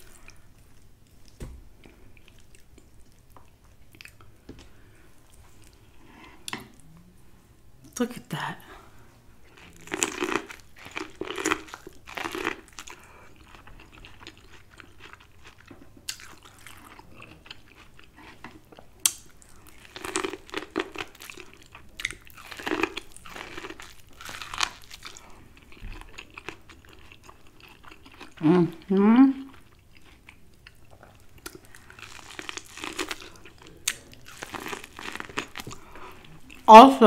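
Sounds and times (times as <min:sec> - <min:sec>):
quiet chewing: 0:00.0 - 0:07.1, 0:09.4 - 0:36.7
crunching bites of corn: 0:31.4 - 0:35.8.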